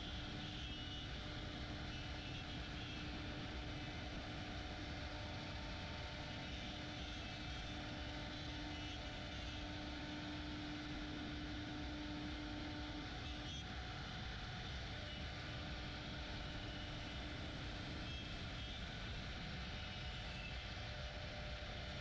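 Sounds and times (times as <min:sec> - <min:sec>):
router machine humming: 0:00.0 - 0:22.0.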